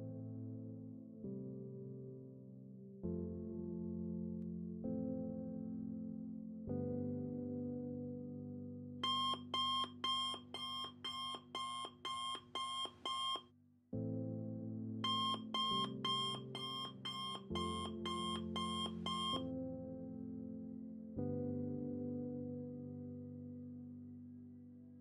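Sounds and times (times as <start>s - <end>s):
soft background music chords: 5.4s - 13.4s, 14.0s - 24.6s
electronic alarm beeping: 9.0s - 13.4s, 15.0s - 19.4s.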